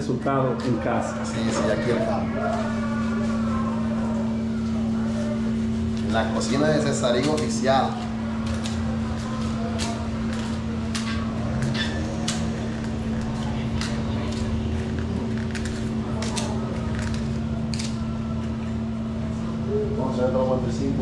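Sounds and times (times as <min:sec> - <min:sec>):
low mechanical hum: 0:00.0 - 0:21.0
paper liners crinkling: 0:04.6 - 0:18.6.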